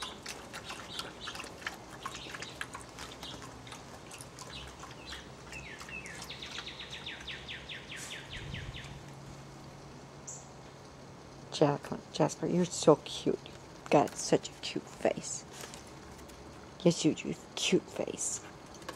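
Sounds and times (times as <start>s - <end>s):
dog lapping water: 0.0s - 7.5s
birds chirping: 0.0s - 9.1s.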